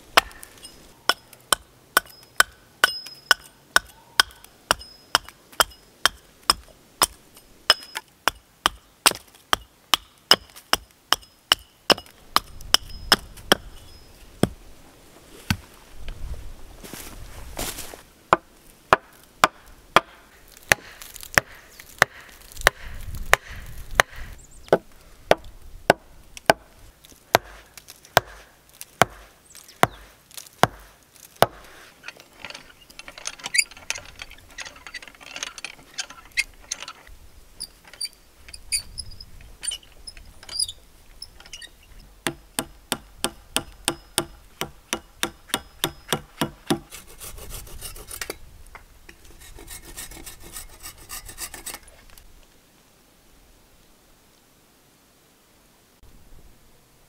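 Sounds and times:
wooden stake being hammered: 0.2s - 0.5s, 1.1s - 13.7s, 18.3s - 26.7s, 27.3s - 31.7s, 42.2s - 47.0s
hand auger grinding and squeaking: 0.2s - 5.8s, 31.6s - 42.1s, 45.5s - 48.4s, 49.3s - 51.9s
hand saw cutting wood: 44.2s - 48.4s, 49.2s - 52.0s.

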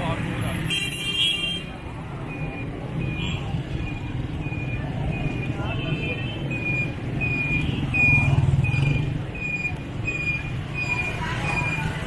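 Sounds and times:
motorcycle engines running: 2.4s - 12.0s.

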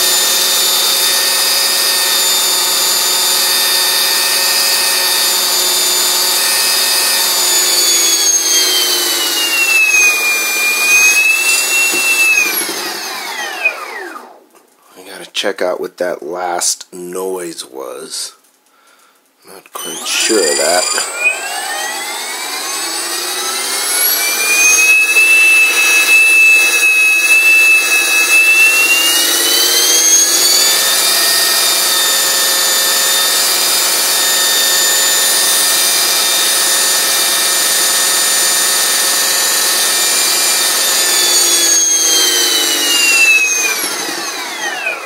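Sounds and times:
helicopter motor and gear whine: 5.1s - 14.0s, 19.8s - 31.0s, 37.6s - 45.0s.

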